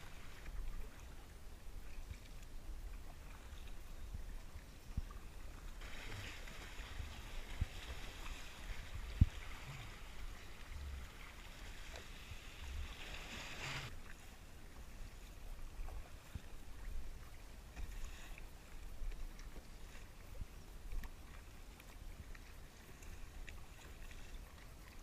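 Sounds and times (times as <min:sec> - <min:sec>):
wind rumble on microphone: 0:00.0 - 0:14.0
water splashing around paddle: 0:00.0 - 0:25.0.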